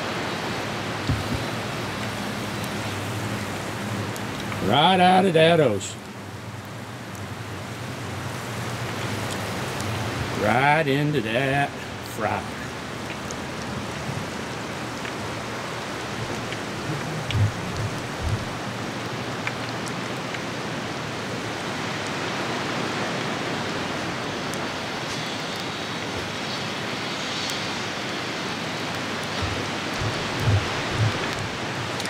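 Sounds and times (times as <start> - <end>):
dull low bumps: 1.0 - 4.6, 13.2 - 19.1, 29.3 - 32.0
fish deep-frying in oil: 11.2 - 32.0.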